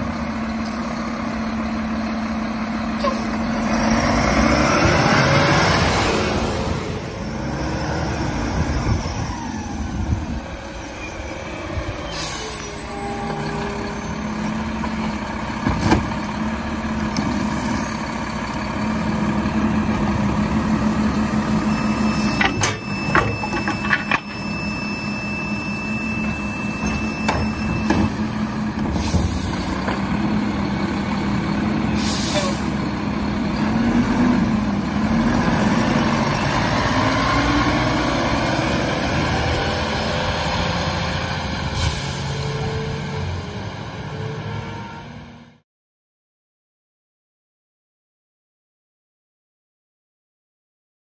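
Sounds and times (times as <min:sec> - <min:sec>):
garbage truck diesel engine: 0:00.0 - 0:45.6
clunks: 0:22.3 - 0:24.6, 0:26.3 - 0:30.2
air brake hisses: 0:32.0 - 0:32.7, 0:41.7 - 0:42.4.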